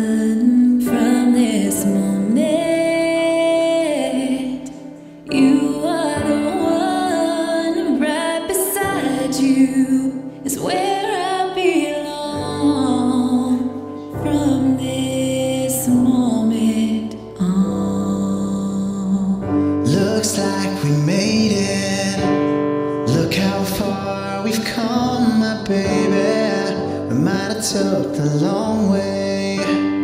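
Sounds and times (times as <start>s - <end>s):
woman singing slow melody: 0.0s - 20.7s.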